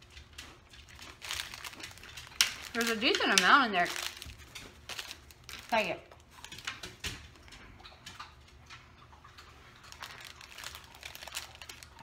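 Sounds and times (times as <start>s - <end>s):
low room hum: 0.0s - 12.0s
packaging rustling and crinkling: 0.4s - 6.8s, 9.9s - 12.0s.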